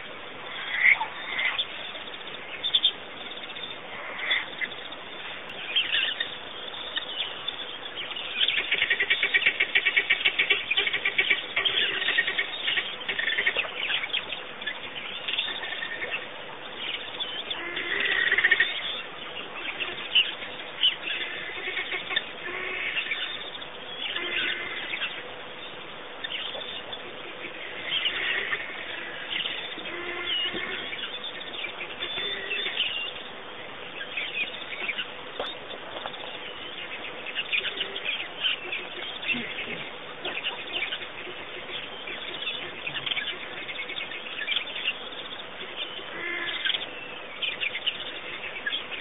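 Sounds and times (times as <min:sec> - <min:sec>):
birds chirping and calling: 0:00.0 - 0:49.0.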